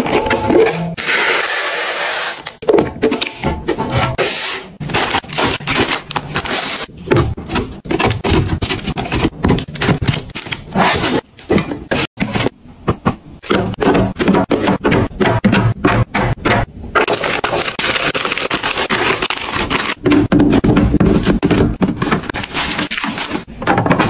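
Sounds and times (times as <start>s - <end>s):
plastic packaging crinkling: 17.1s - 20.0s.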